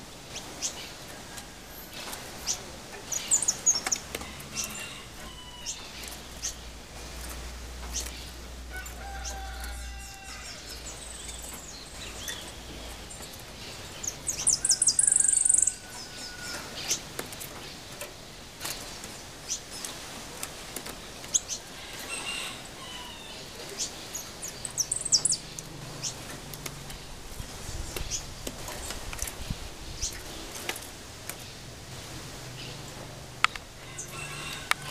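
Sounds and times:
bird chirps: 24.5 - 26.2.

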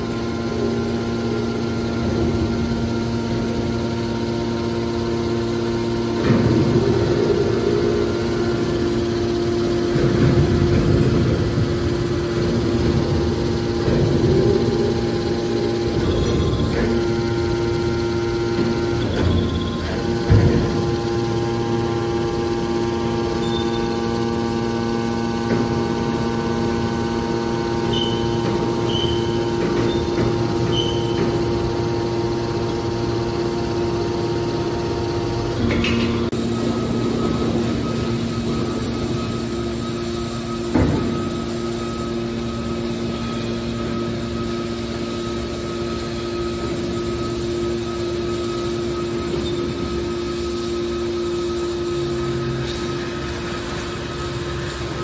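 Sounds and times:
hydraulic power unit humming: 0.0 - 55.0.

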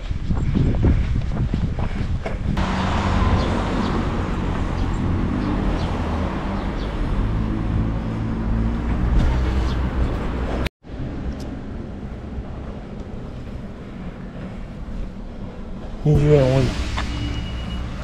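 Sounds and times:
footsteps on pavement: 0.0 - 6.0
street noise: 0.0 - 18.0
vehicle engine humming: 2.6 - 18.0.

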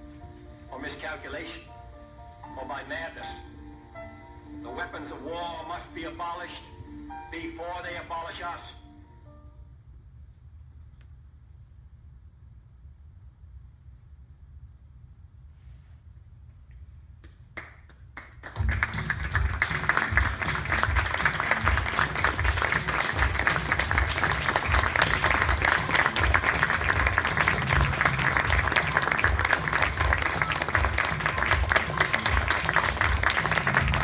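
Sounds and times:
audience applauding: 17.6 - 34.0.

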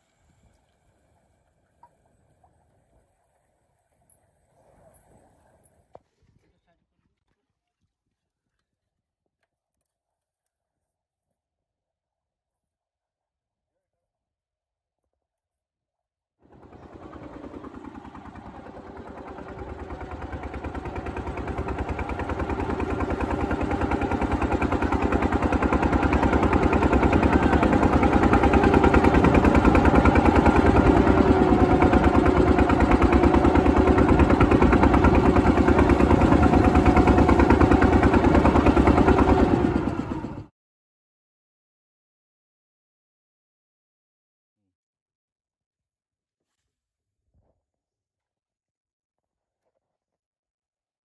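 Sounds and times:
boat engine pulsing: 16.5 - 40.5.

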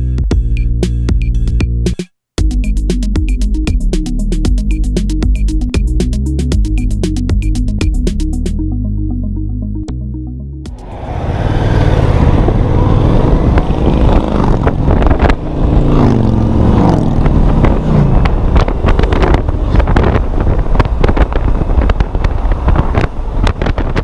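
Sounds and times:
motorcycle engine accelerating: 10.7 - 24.0
wind buffeting microphone: 10.8 - 24.0.

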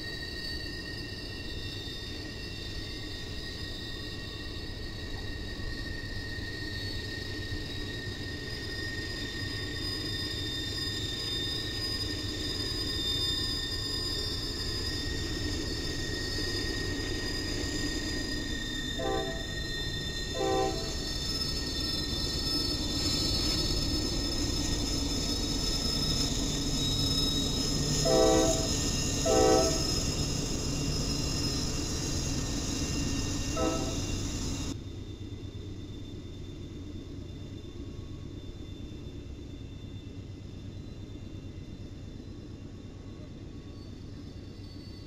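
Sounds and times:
wheels squealing on curve: 0.0 - 34.8
freight train rumbling: 0.0 - 45.0
locomotive horn blasts: 19.0 - 19.6, 20.4 - 21.0, 28.0 - 29.8, 33.6 - 34.0.

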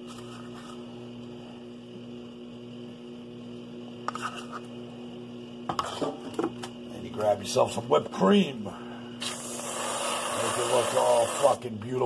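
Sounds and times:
electrical hum: 0.0 - 12.0
spoon scraping plastic cup: 4.1 - 4.7.

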